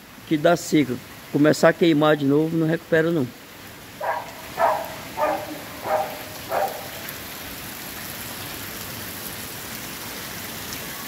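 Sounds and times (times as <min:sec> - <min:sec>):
heavy rain hissing: 0:00.0 - 0:11.0
short calls: 0:04.0 - 0:07.2.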